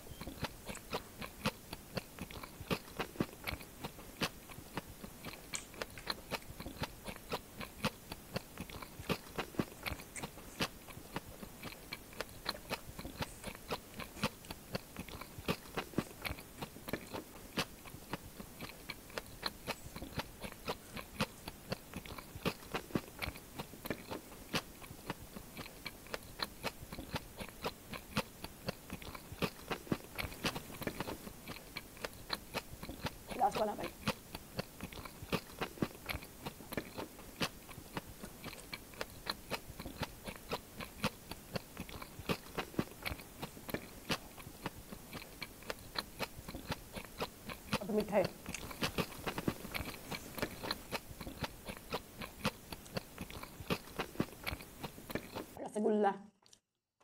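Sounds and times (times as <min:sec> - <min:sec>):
chewing crispy snacks: 0:00.0 - 0:55.6, 0:56.4 - 0:56.7.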